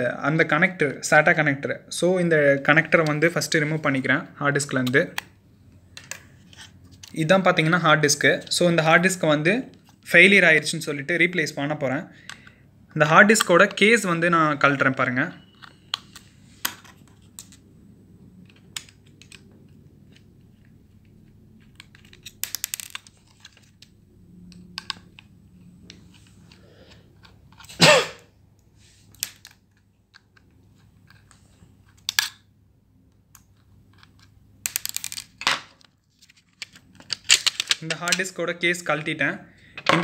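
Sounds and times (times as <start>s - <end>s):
screwdriver metal clicks and rattles: 36.6s - 38.2s.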